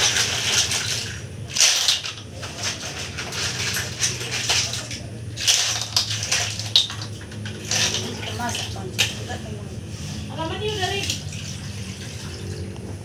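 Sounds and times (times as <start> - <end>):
steady low hum: 0.0 - 13.0
shells clattering and scraping: 1.5 - 8.1.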